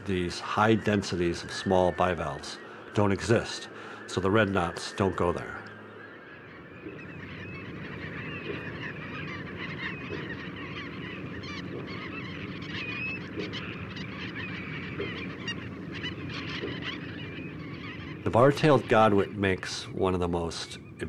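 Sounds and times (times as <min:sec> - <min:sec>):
shorebirds chirping: 0:00.0 - 0:21.0.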